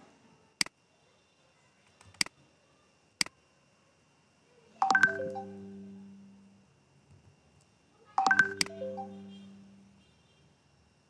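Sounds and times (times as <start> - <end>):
electronic chime: 4.8 - 6.5, 8.2 - 9.9.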